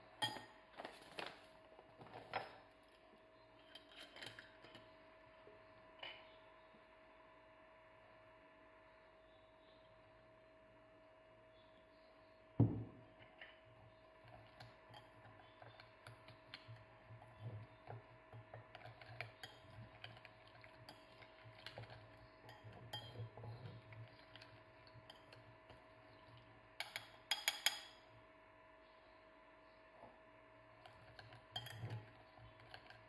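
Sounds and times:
spoon clinking on ceramic bowl: 0.2s - 0.5s, 18.7s - 24.4s, 26.8s - 28.0s, 30.8s - 33.0s
metal spoon scraping a bowl: 14.2s - 25.4s, 30.8s - 33.0s.

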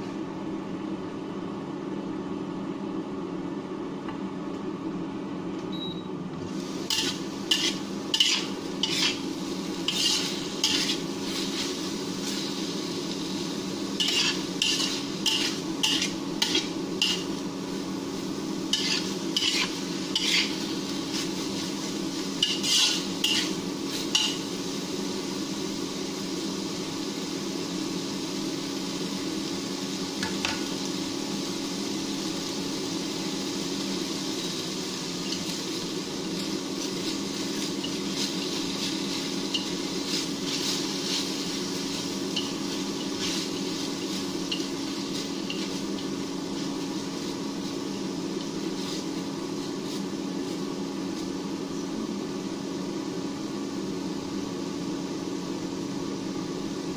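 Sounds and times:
steady low hum: 0.0s - 56.9s
food sizzling in a wok: 6.4s - 56.9s.

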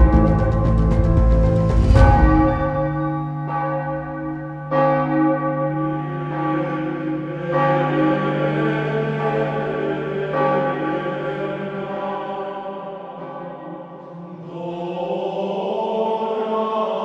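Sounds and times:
church bell tolling: 0.0s - 1.0s, 2.0s - 14.4s
deep rumble of music: 0.0s - 2.9s.

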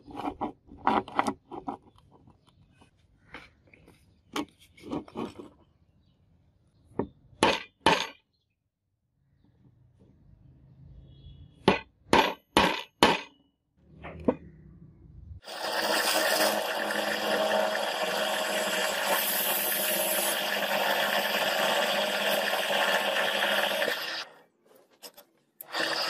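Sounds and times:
drill press drilling steel: 15.4s - 24.3s, 25.6s - 26.0s.

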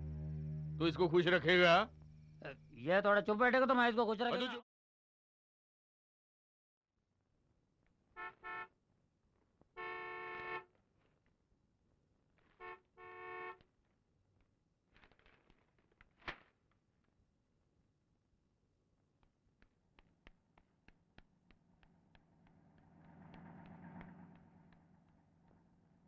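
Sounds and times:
car horn honking: 8.2s - 8.7s, 9.8s - 10.7s, 12.6s - 13.6s
sharp tap: 19.6s - 25.2s.

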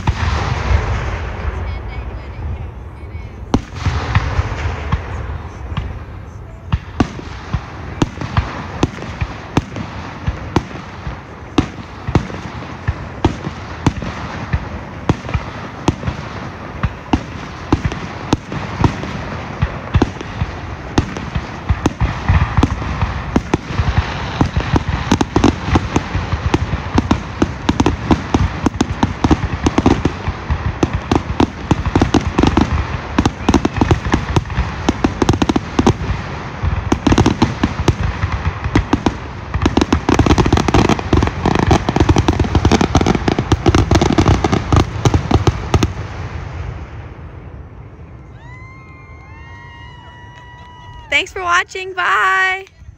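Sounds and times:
firework shells bursting: 6.8s - 46.0s.

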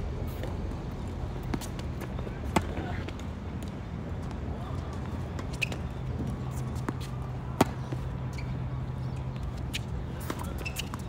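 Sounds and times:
tennis ball bouncing: 6.8s - 8.0s.

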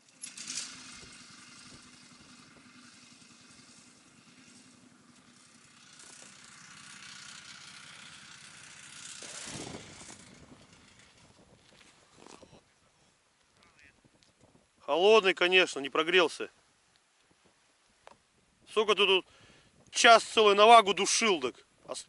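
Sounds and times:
snowmobile engine running: 0.0s - 12.6s.

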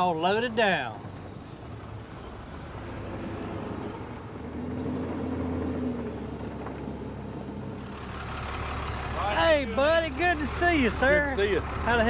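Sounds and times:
truck engine rumbling: 0.0s - 12.0s.

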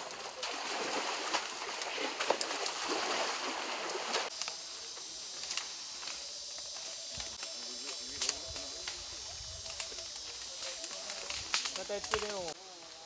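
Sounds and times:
splashing water: 0.0s - 4.3s
twigs snapping: 0.0s - 12.6s
rustling undergrowth: 0.0s - 13.0s.

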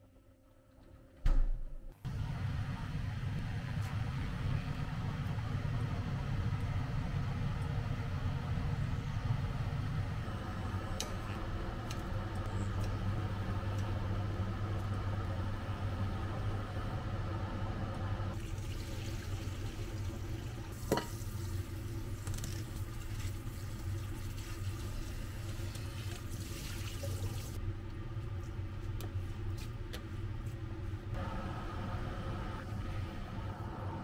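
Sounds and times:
steady low hum: 0.0s - 26.3s, 27.6s - 34.0s
tap water running into pan: 18.4s - 21.6s, 22.2s - 27.6s.

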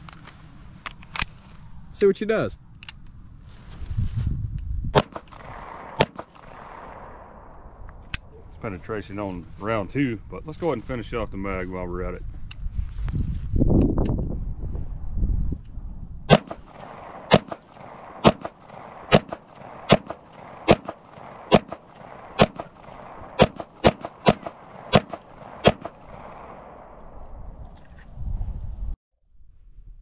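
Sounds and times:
pistol shots with echo: 5.0s - 7.4s, 16.3s - 27.0s.

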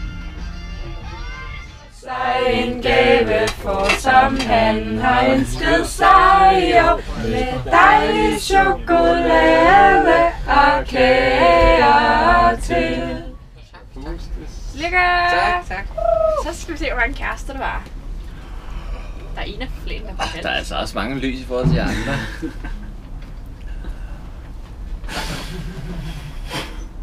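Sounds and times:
group singing a birthday song: 1.9s - 13.4s.

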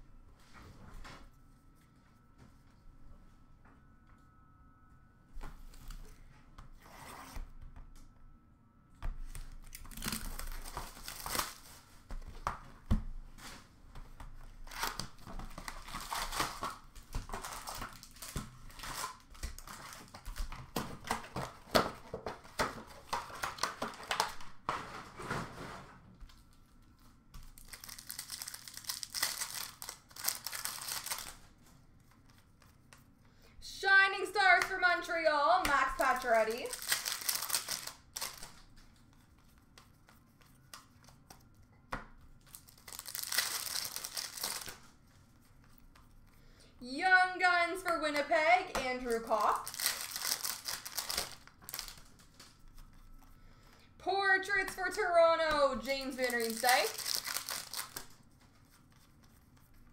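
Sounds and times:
wrappers tearing and crinkling: 9.3s - 11.9s, 14.5s - 24.5s, 27.4s - 31.6s, 35.8s - 39.1s, 42.4s - 45.0s, 48.9s - 52.9s, 55.9s - 58.2s
cards rustling: 26.4s - 33.2s, 35.6s - 41.8s, 42.4s - 46.4s, 47.9s - 53.8s, 55.6s - 59.9s.

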